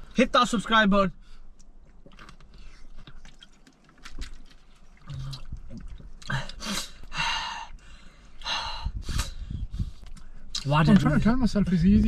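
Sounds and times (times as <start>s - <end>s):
chewing and food handling: 1.5s - 7.1s
sharp breaths through mouth: 6.6s - 10.5s.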